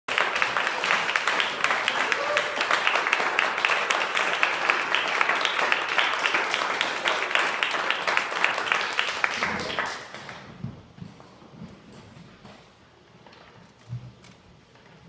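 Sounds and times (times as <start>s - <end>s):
audience applauding: 0.1s - 10.5s.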